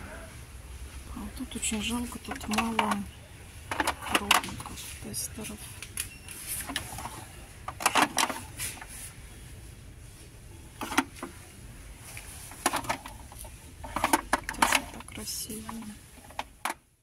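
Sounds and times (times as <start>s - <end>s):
low hum of shop: 0.0s - 17.0s
clicks and rustles of handling: 1.7s - 9.1s, 10.8s - 16.9s.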